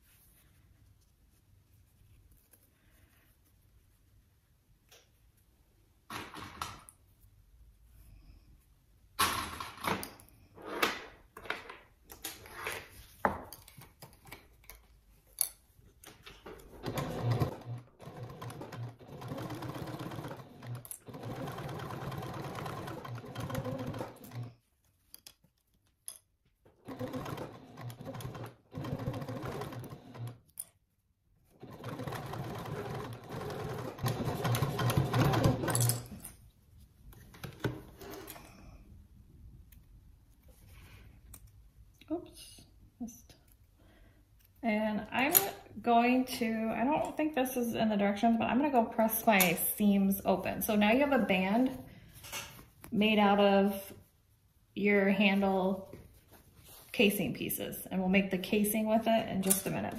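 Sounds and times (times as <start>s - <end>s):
sewing machine stitching: 16.7s - 24.6s, 26.8s - 30.4s, 31.5s - 36.0s.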